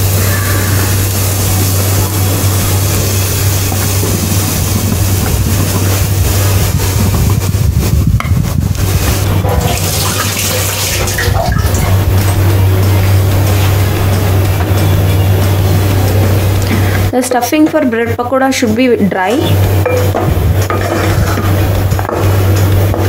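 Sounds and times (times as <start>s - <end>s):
whooshing hiss: 0.0s - 17.2s
kitchen equipment humming: 0.0s - 23.0s.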